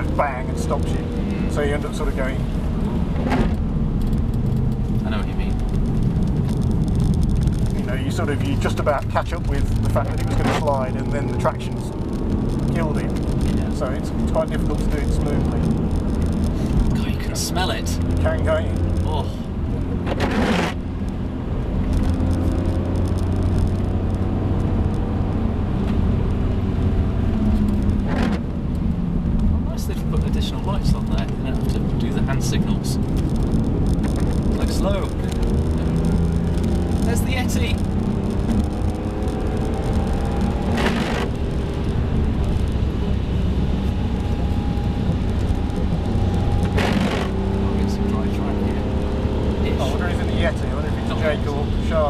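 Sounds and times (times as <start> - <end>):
car engine running at speed: 0.0 - 52.0
tyre and road noise: 0.0 - 52.0.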